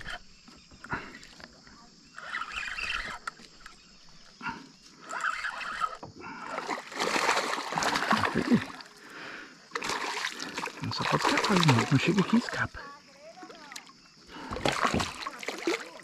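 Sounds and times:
fish splashing at water surface: 6.5s - 8.9s, 9.7s - 12.7s, 13.5s - 16.0s.

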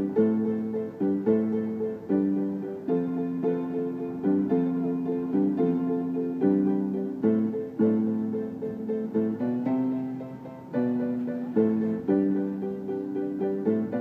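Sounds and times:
piano chords ringing: 0.0s - 14.0s.

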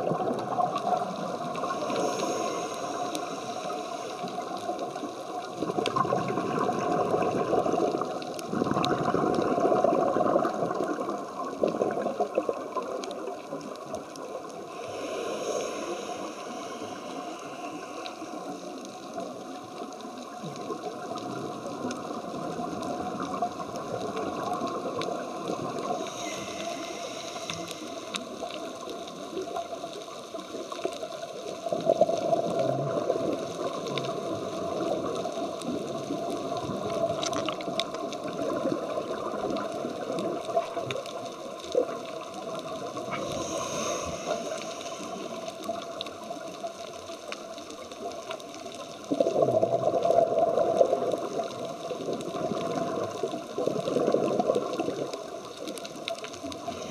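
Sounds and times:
regulator hiss on inhale: 0.1s - 5.6s, 14.3s - 20.4s, 23.3s - 31.7s, 38.7s - 46.5s, 54.3s - 56.9s
diver exhaling bubbles underwater: 5.5s - 13.0s, 31.6s - 40.8s, 49.1s - 55.2s
faint clicks: 9.8s - 56.9s.

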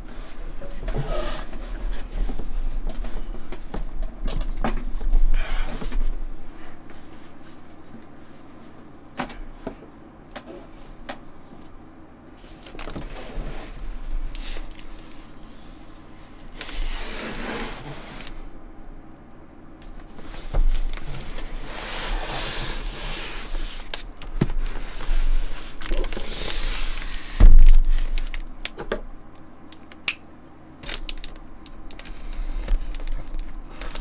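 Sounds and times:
steady low hum: 0.0s - 34.0s
cardboard box scraping and rustling: 16.8s - 18.4s.

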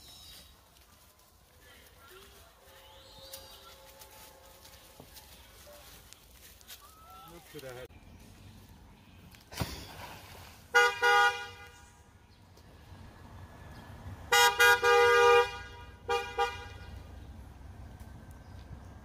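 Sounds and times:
car horn honking: 10.7s - 12.0s, 14.3s - 17.1s.

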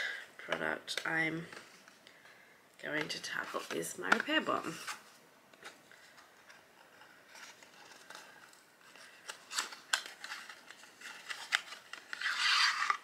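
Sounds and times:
card and paper crinkling: 3.0s - 13.0s.

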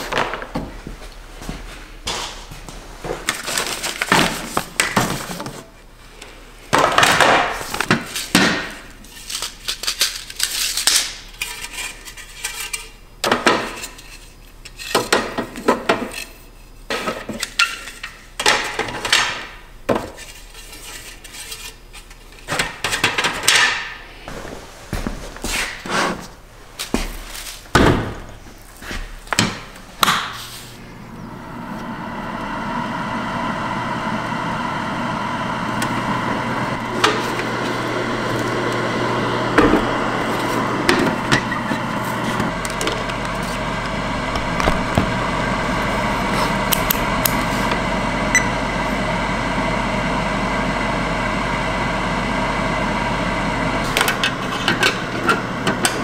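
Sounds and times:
dehydrator fan motor humming: 16.8s - 56.0s.

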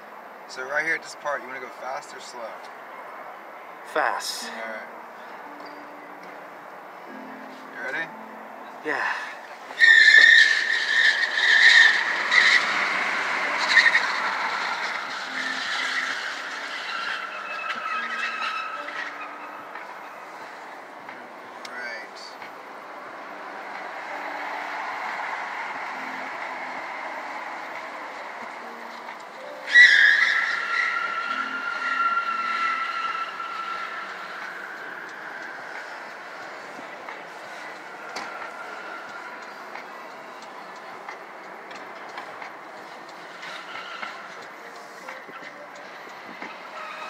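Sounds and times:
tyres squealing: 9.0s - 20.7s, 23.2s - 47.0s.

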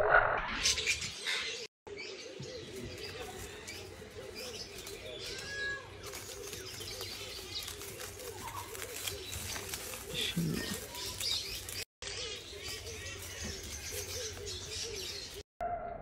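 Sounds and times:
wings fluttering: 3.0s - 11.9s.

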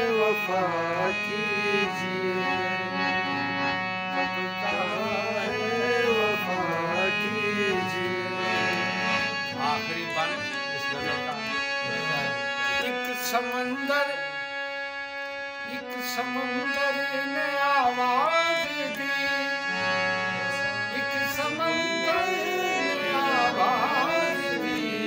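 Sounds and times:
harmonium playing: 0.0s - 25.0s
person singing wordless phrase: 20.5s - 25.0s.

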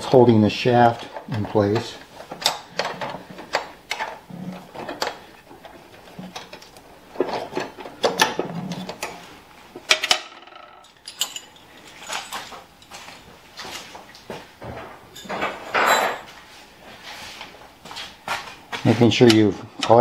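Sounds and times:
wrench clinking on bolt: 10.8s - 12.9s.

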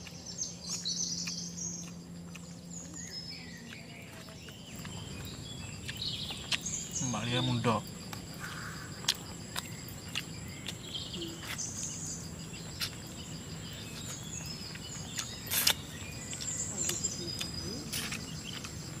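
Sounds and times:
wet lip smacks and chewing: 0.0s - 6.9s, 9.0s - 11.7s, 14.0s - 19.0s
high insect drone: 0.1s - 19.0s.

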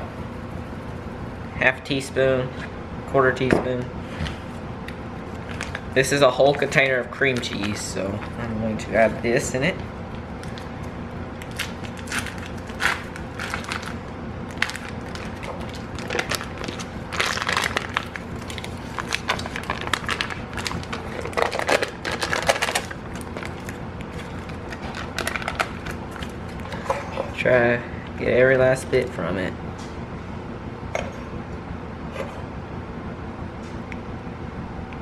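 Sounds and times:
foil wrapper crinkling: 10.4s - 26.6s.

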